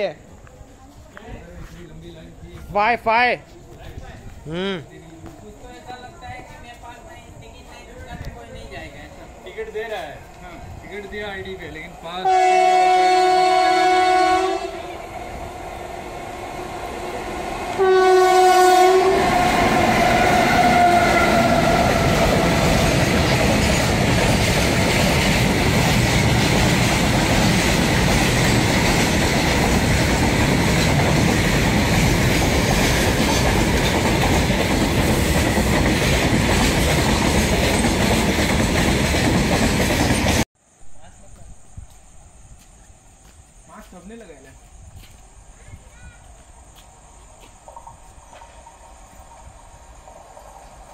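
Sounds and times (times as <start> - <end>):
freight train rumbling on rails: 5.1 - 40.5
locomotive horn blasts: 12.2 - 15.0, 17.8 - 19.3.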